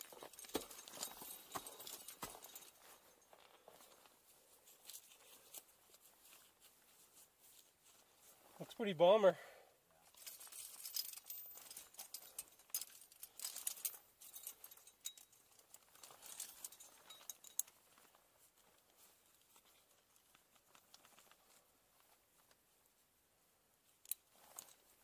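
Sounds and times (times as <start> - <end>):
metal climbing hardware clinking: 0.0 - 4.0, 10.1 - 18.1, 24.0 - 25.0
clothing rustling: 0.0 - 8.8, 10.1 - 25.0.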